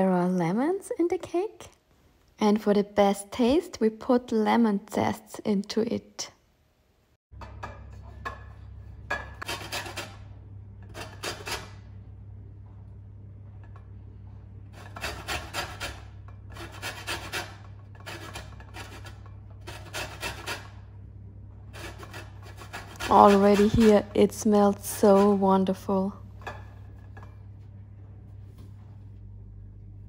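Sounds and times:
steady low hum: 0:07.4 - 0:30.0
lemon rasping on grater: 0:09.4 - 0:10.3, 0:10.9 - 0:11.8, 0:14.8 - 0:20.8, 0:21.7 - 0:25.5.

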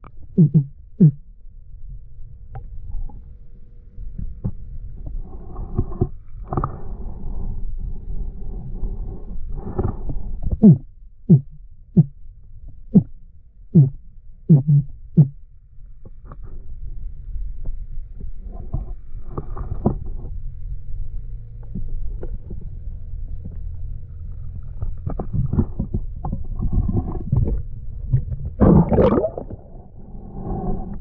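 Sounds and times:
underwater rumble of water: 0:00.0 - 0:31.0.

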